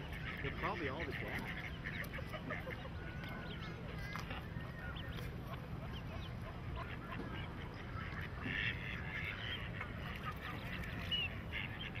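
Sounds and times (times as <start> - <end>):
ducklings peeping: 0.0 - 12.0
duck quacking: 0.1 - 2.9, 5.5 - 12.0.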